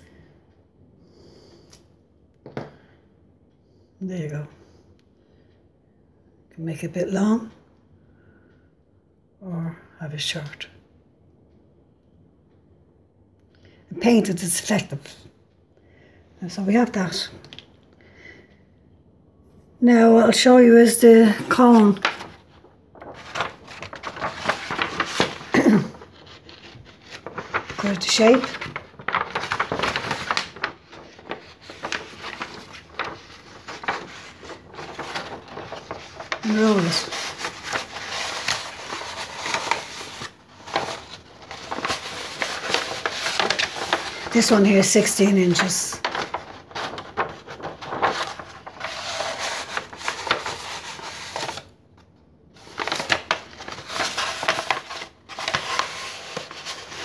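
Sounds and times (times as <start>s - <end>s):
paper rustling and scraping: 21.1s - 51.7s, 52.6s - 57.0s.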